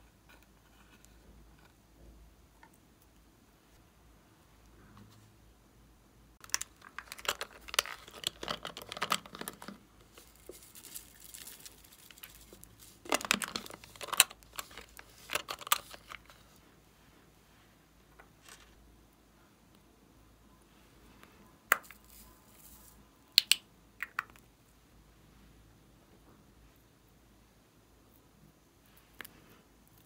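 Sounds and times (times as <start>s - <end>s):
plastic container crinkling: 6.4s - 16.4s.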